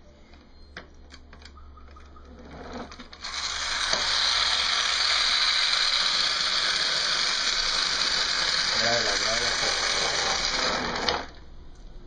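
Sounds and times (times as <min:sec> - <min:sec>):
small electric motor whirring: 0:02.5 - 0:11.4.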